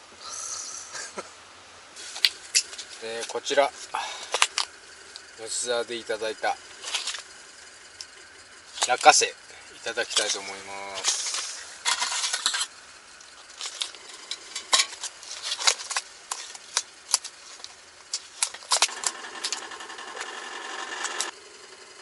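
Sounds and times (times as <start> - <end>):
steady hum: 0.0 - 22.0
plastic pack crinkling: 14.8 - 18.9.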